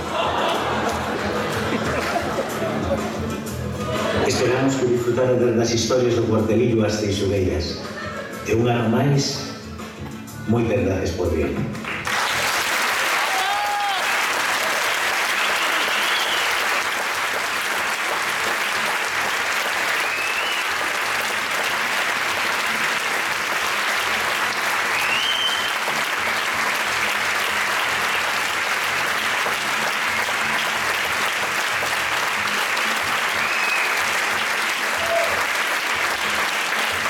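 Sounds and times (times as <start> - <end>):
audience applauding: 0.0 - 3.3, 11.8 - 37.0.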